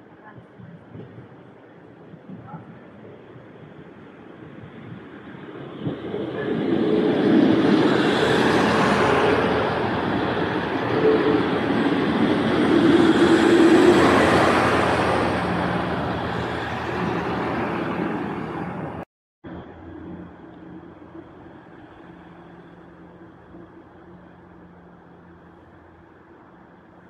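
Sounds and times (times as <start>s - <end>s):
diesel train engines: 0.0s - 27.0s
train wheels on rails: 4.4s - 19.0s.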